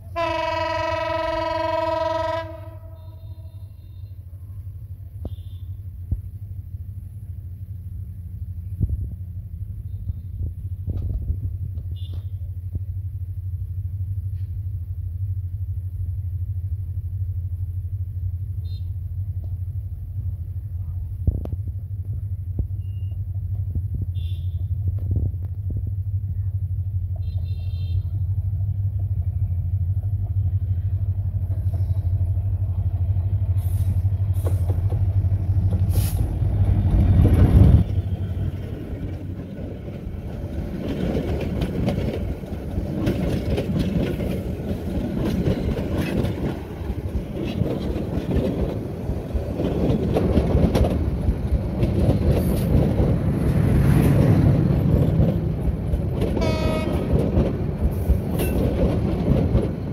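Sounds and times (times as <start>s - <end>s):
diesel locomotive engine rumble: 0.0s - 59.9s
train wheels clattering on rails: 10.0s - 13.0s, 33.2s - 59.9s.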